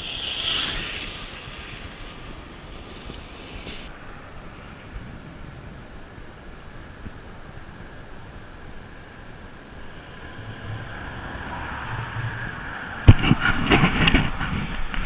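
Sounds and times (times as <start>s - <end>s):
vehicle passing by: 9.8s - 13.5s.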